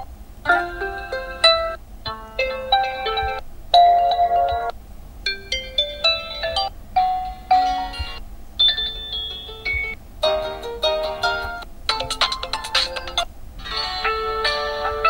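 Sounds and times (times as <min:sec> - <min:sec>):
phone ringtone chimes: 0:02.4 - 0:04.7, 0:05.3 - 0:10.0.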